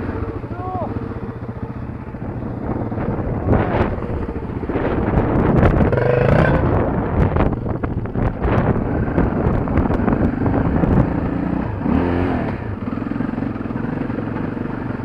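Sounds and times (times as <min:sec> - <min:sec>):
motorbike engine running: 0:00.0 - 0:15.0
wind buffeting microphone: 0:01.1 - 0:12.8.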